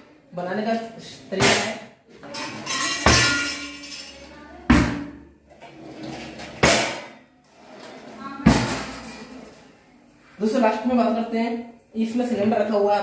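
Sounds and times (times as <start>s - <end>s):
steel utensils rattling: 2.2s - 4.3s
drawers banging shut: 5.7s - 7.1s.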